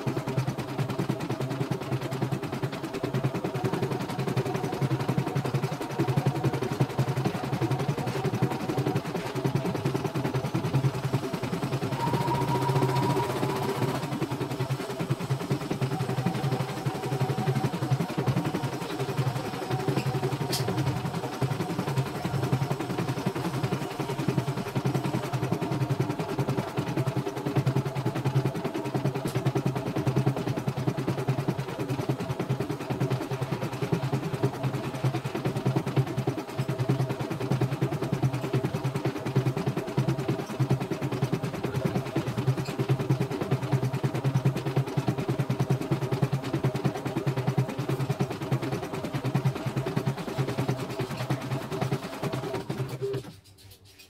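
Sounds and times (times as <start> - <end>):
motor hum: 0.0 - 29.7.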